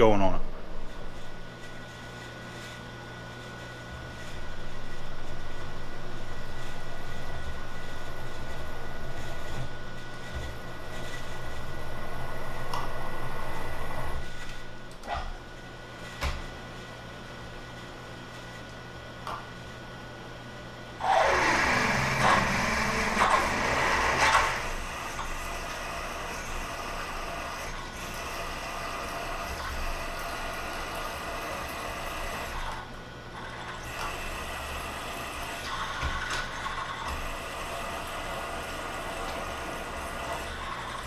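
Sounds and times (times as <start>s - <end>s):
milling machine spindle running: 0.0s - 14.9s, 21.0s - 41.0s
drill boring metal: 21.0s - 32.8s, 33.4s - 41.0s.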